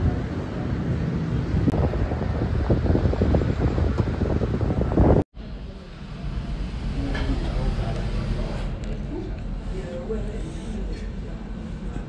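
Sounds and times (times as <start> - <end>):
wind buffeting microphone: 1.3 - 5.3.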